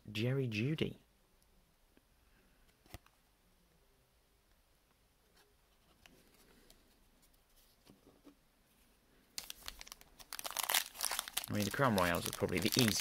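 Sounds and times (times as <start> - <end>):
cards being handled: 9.4 - 13.0.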